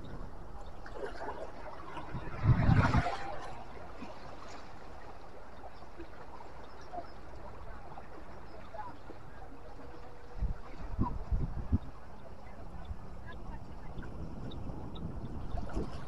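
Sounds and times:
sea water washing over rocks: 1.0s - 5.0s
wind gust on microphone: 1.9s - 4.1s, 10.3s - 16.0s.

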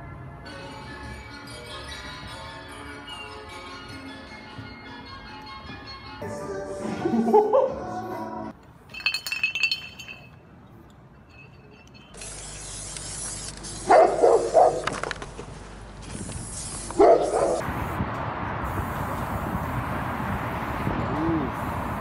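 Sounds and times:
steady background noise: 0.0s - 22.0s
dog barking: 13.9s - 14.8s, 17.0s - 17.6s.

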